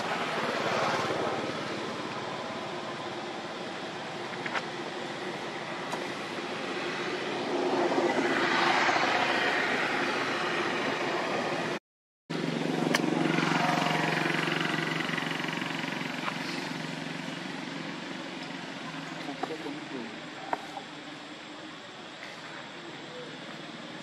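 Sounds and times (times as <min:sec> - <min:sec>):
vehicle engine humming: 0:00.0 - 0:24.0
vehicle passing: 0:05.6 - 0:20.1.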